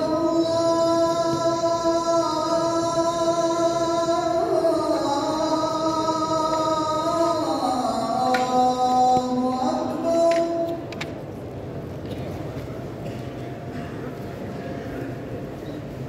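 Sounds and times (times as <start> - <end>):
muezzin chanting call to prayer: 0.0 - 11.0.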